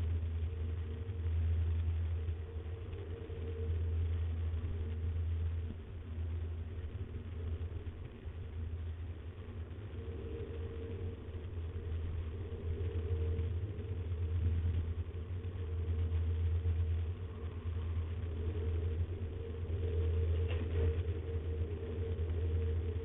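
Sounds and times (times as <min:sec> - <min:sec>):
low hum and rumble: 0:00.0 - 0:23.0.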